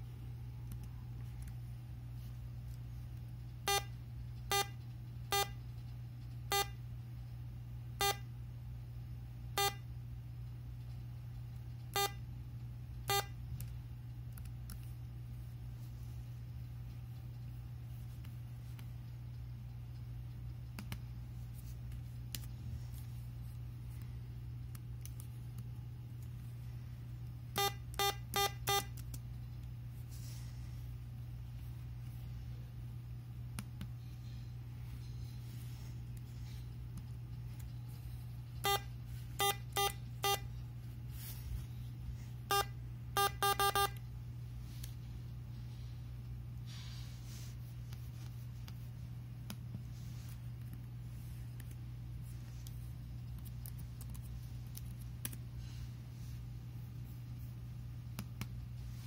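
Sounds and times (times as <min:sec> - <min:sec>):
steady low hum: 0:00.0 - 0:59.0
short electronic beeps: 0:09.6 - 0:09.8, 0:38.6 - 0:40.4.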